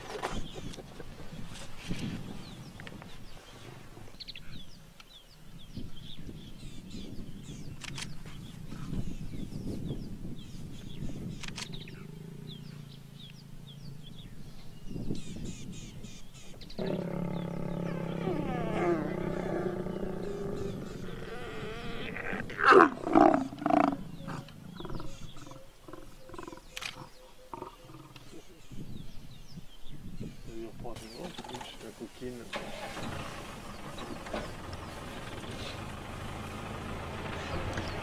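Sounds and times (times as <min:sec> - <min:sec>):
lions growling and snarling: 0:10.4 - 0:14.6, 0:16.6 - 0:28.5.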